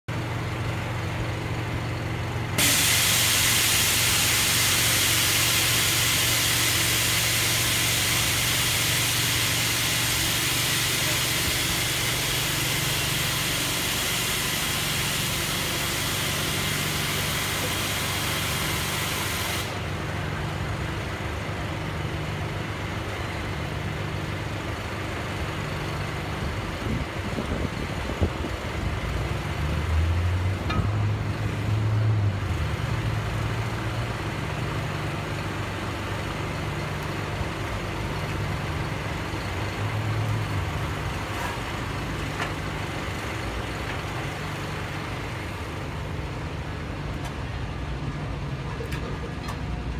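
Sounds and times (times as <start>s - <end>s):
loud air hiss: 2.6s - 19.9s.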